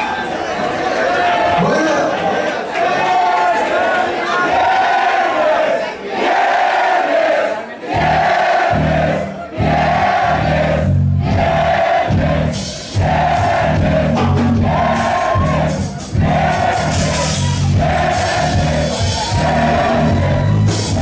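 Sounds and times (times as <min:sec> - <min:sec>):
crowd singing along: 0:03.2 - 0:21.0
live rock band playing: 0:08.0 - 0:21.0
steady bass line: 0:08.0 - 0:21.0.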